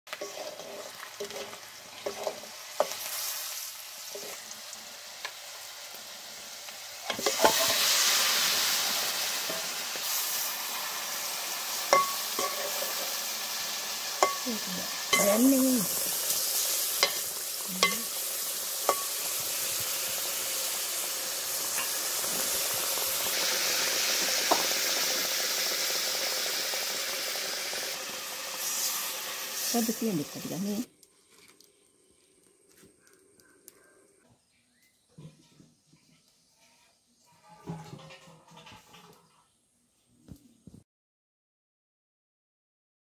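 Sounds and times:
fish frying in hot oil: 0.1s - 30.9s
ladle clinking against pot: 11.9s - 12.8s.

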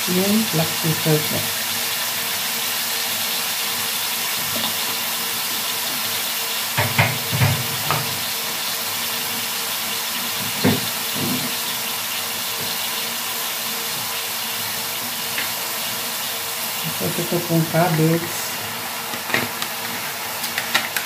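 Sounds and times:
vegetables sizzling in a pot: 0.0s - 21.0s.

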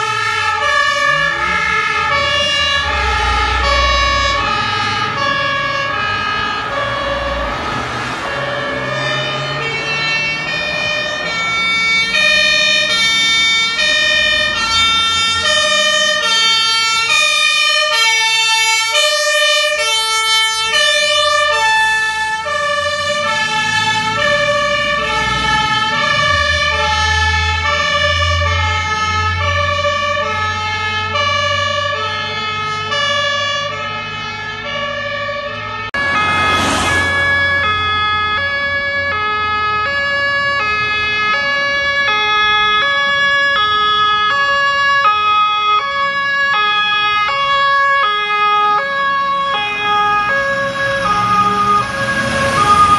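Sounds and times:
diesel truck engine rumbling: 0.0s - 52.9s
two-tone fire engine sirens: 0.0s - 52.9s
sudden loud blast: 36.0s - 37.9s.

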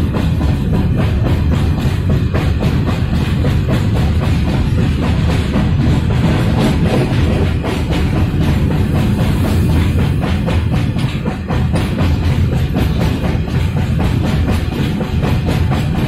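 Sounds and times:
heavy drum beat: 0.0s - 16.0s.

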